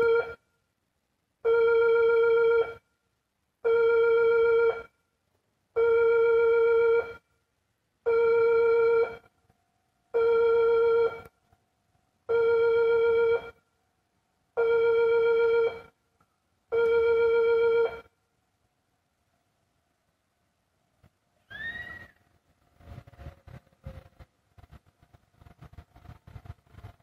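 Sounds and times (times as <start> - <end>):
railway warning alarm tones: 0.0 - 0.4, 1.5 - 2.9, 5.8 - 7.2, 8.0 - 9.3, 10.1 - 11.3, 12.3 - 13.6, 14.6 - 15.9, 16.7 - 18.1.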